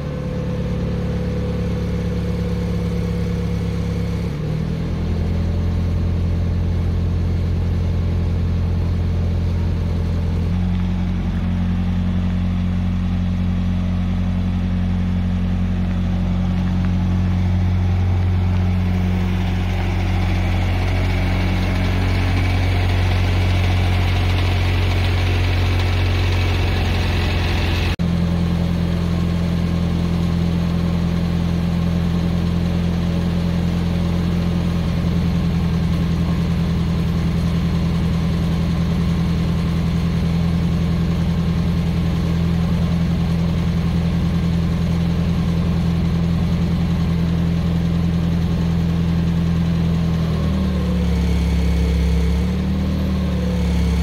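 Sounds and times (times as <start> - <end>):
vehicle engine idling: 0.0 - 54.0.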